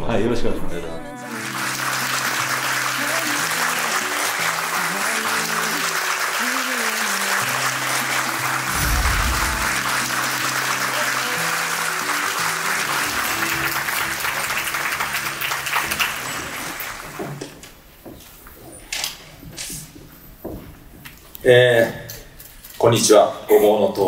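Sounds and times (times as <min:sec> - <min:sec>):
background music with held notes: 0:01.0 - 0:17.4
audience applauding: 0:01.2 - 0:17.7.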